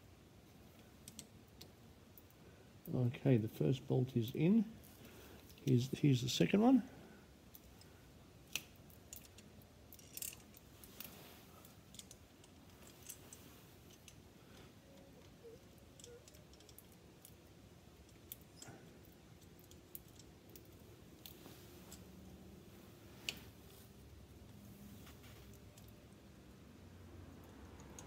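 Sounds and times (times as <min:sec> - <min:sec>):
faint clicks and metal taps: 0:00.7 - 0:03.0, 0:07.5 - 0:22.4, 0:24.4 - 0:26.1, 0:27.4 - 0:28.0.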